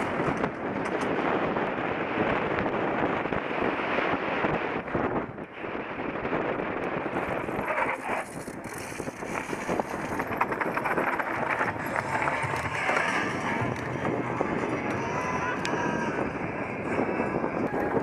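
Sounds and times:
bike rattling and clicking: 0.0 - 1.8, 6.8 - 18.0
bike tyres and wind rushing: 0.0 - 18.0.

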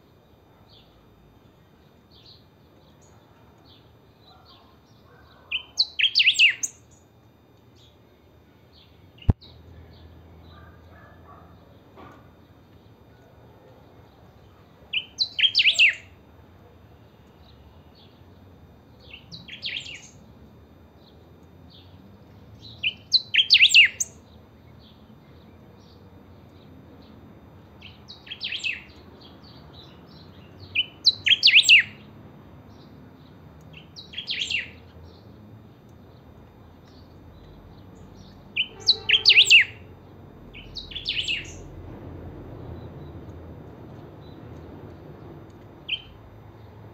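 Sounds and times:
bird singing whistled phrases: 5.6 - 6.7, 15.0 - 16.1, 22.8 - 24.1, 30.8 - 32.0, 38.6 - 39.8, 40.6 - 41.6.

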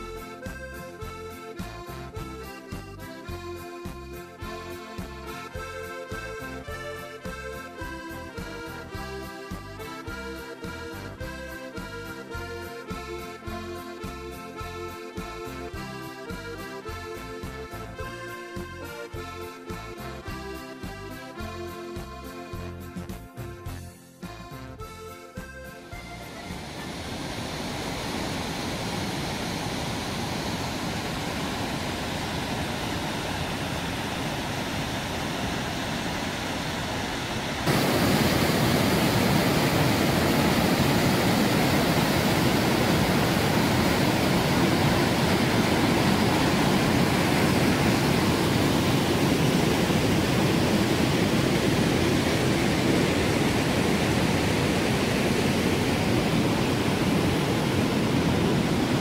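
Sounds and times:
water rushing over boulders: 26.2 - 59.0.

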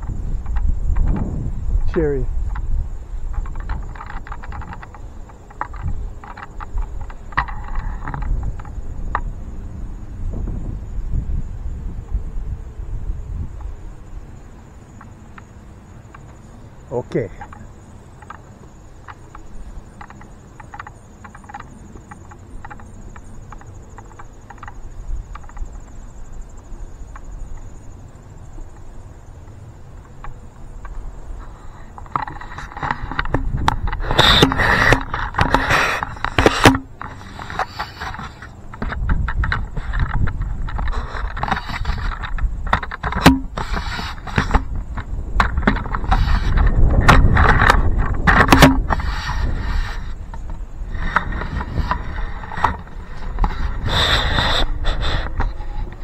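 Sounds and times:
gear rustling and scraping: 0.0 - 9.2, 30.7 - 56.0
crickets chirring: 0.0 - 56.0
wind rumble on microphone: 0.0 - 56.0.

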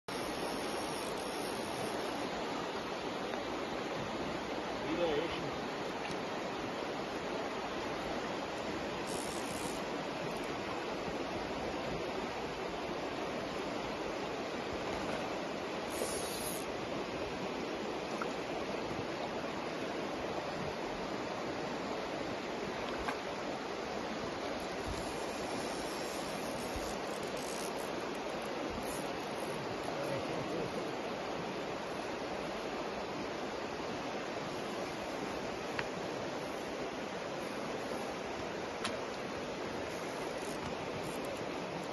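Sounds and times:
river rushing over gravel: 0.1 - 41.9.

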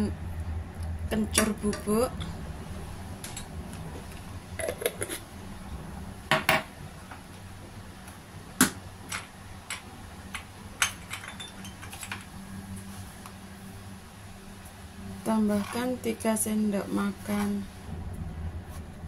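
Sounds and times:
low steady hum: 0.0 - 19.0
kitchen utensils clinking: 10.8 - 12.2.

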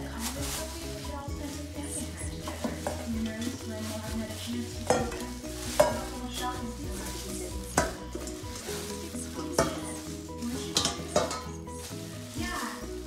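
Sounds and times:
plastic wrap crinkling: 0.0 - 13.0.

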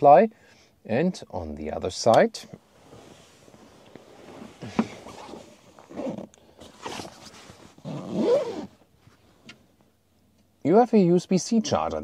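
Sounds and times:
fabric and cushion rustling: 2.6 - 9.4.

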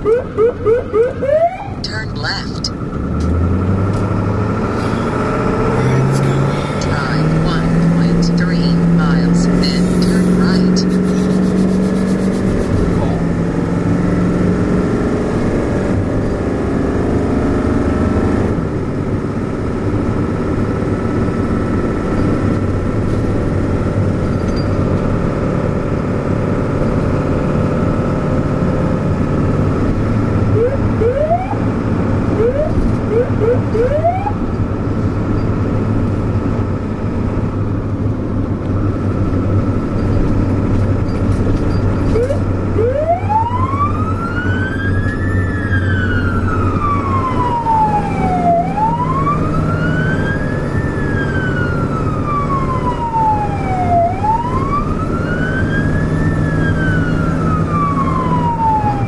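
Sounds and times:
siren whoops: 0.0 - 1.9, 30.5 - 31.7, 32.3 - 34.4, 42.1 - 59.0
vehicle engine and road noise: 0.0 - 59.0
siren winding up: 30.5 - 31.7, 32.4 - 34.4, 42.0 - 59.0.

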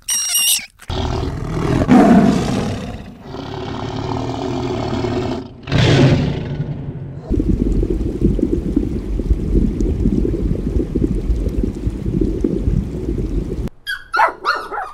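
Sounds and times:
tiger growling: 0.9 - 7.3
tiger roaring: 0.9 - 7.3.

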